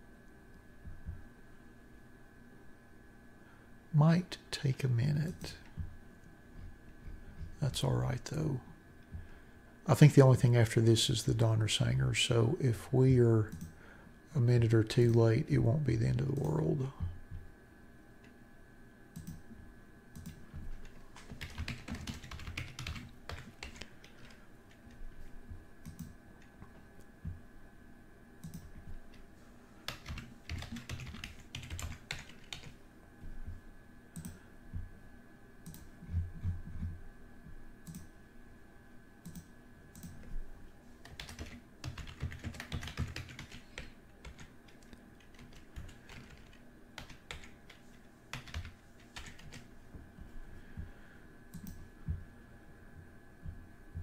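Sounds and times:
faint steady whine: 0.0 - 54.0
typing on a computer keyboard: 19.2 - 19.4, 20.2 - 25.0, 28.4 - 29.2, 29.9 - 32.8, 34.2 - 34.4, 41.0 - 49.7, 51.5 - 51.8.

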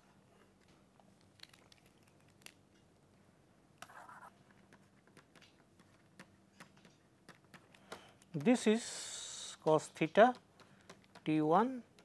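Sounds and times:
stylus scratching on tablet: 3.8 - 4.9.

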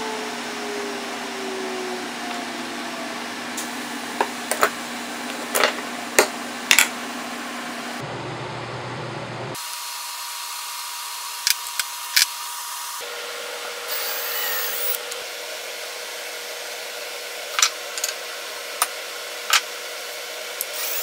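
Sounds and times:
shop hum: 0.0 - 21.0.

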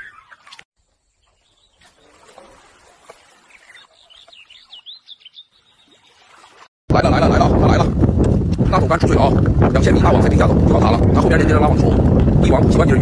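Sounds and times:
small bird chirping: 3.4 - 6.2.

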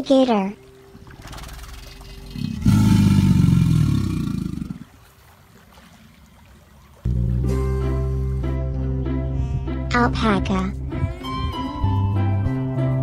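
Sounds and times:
alligator growling: 1.0 - 4.9
music: 7.1 - 13.0.

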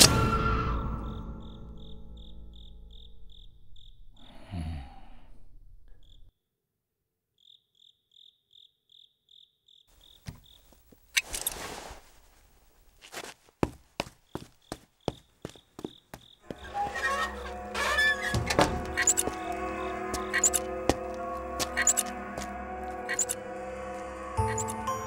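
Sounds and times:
crickets chirping: 0.2 - 6.3, 7.4 - 11.8, 14.0 - 25.0
music chord: 16.5 - 25.0.

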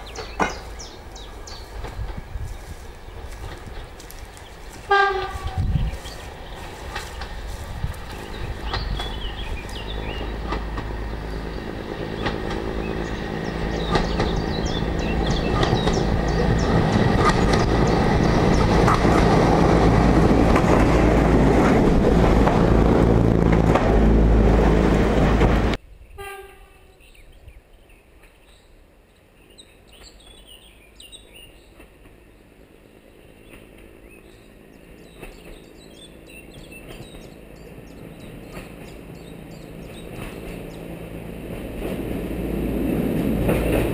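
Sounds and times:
birdsong: 0.0 - 19.4, 25.8 - 41.2
diesel railcar passing: 0.0 - 43.9.

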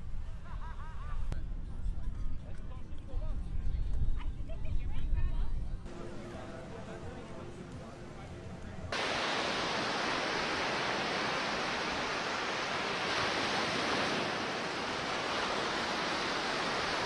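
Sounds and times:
ocean surf rushing: 8.9 - 17.0.

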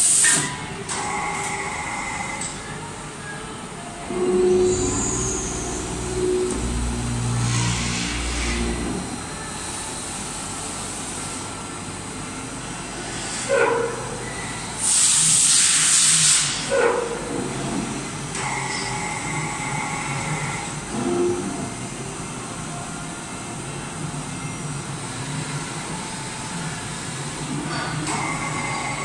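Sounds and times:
low motor hum: 4.1 - 9.6
loud hiss: 14.8 - 16.7.

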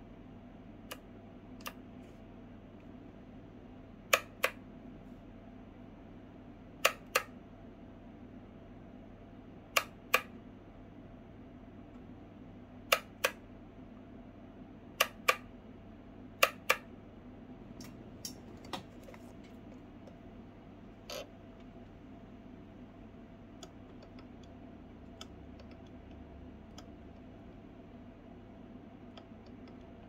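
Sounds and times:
low steady hum: 0.0 - 30.0
toggle switch clicks: 4.1 - 4.6, 6.8 - 7.4, 9.7 - 10.4, 16.4 - 16.9.

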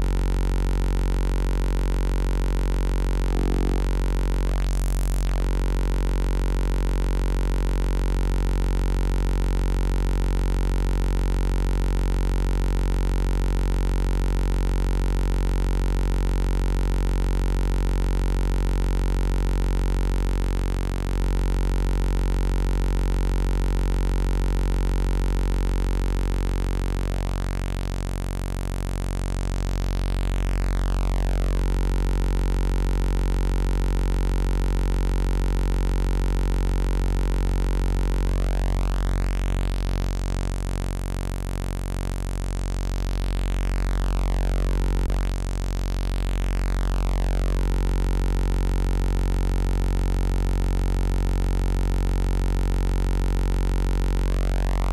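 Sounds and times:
low buzzy synthesizer note: 0.0 - 13.8, 25.7 - 54.9.

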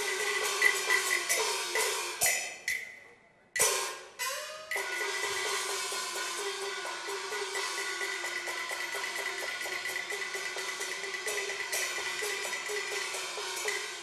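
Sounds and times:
opera percussion ensemble: 0.0 - 3.0, 3.6 - 14.0
cymbal crash: 3.6 - 14.0.

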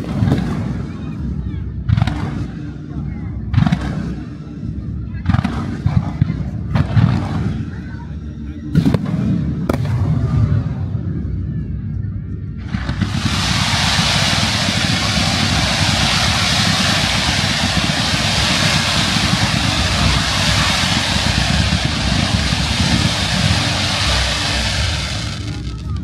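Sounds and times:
fireworks fountain hissing: 0.0 - 1.2, 12.6 - 26.0
low rumble: 0.0 - 26.0.

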